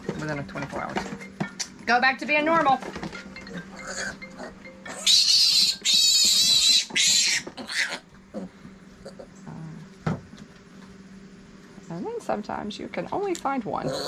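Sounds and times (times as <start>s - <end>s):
piglet squealing: 3.6s - 9.3s.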